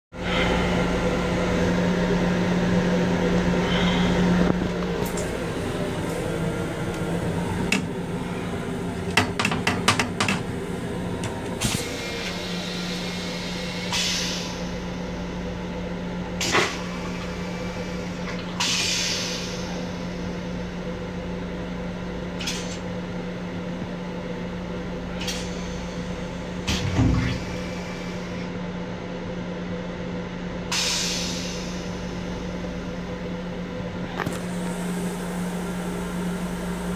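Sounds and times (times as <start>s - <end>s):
steady low hum: 0.2s - 18.6s.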